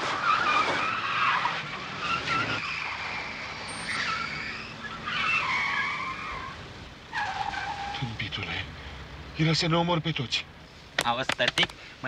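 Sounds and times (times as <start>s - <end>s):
car tyres squealing: 0.0s - 9.1s
car rumble: 0.0s - 12.0s.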